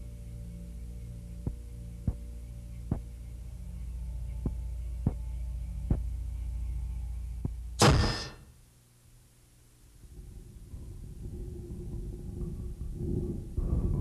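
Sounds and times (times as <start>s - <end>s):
low steady hum: 0.0s - 14.0s
loud burst of noise: 7.8s - 8.4s.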